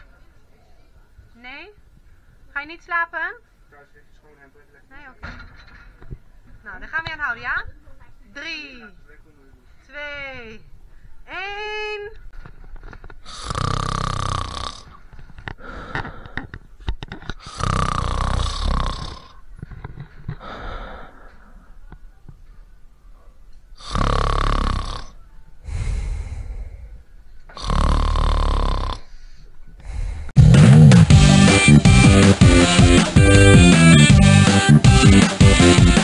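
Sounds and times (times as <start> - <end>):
person pretend snoring: 13.2 - 15.0, 17.4 - 19.4, 23.8 - 29.1.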